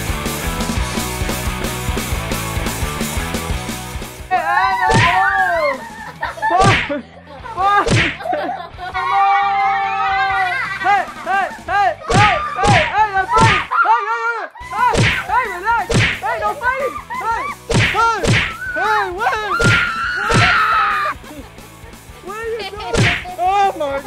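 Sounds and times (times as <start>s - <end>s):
party dance music: 22.2s - 24.0s.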